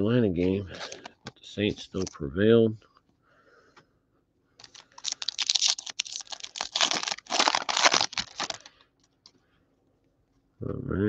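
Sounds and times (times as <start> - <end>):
foil wrapper crinkling and tearing: 4.6 - 8.8.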